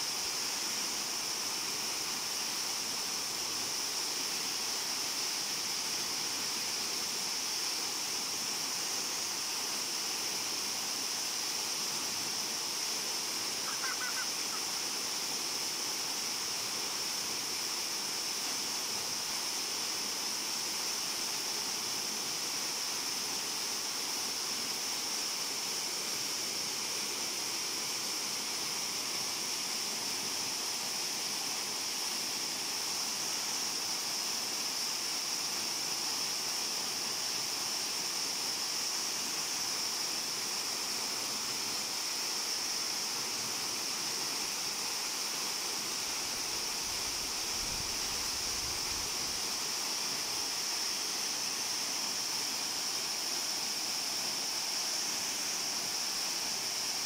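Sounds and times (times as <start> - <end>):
small waterfall rushing into pool: 0.0 - 57.0.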